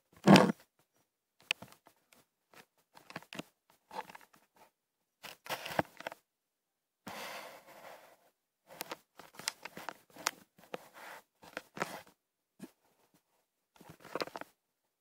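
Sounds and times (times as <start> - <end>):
camera rustling and clicking: 0.2 - 0.6, 2.6 - 4.4, 8.8 - 12.1, 13.8 - 14.5.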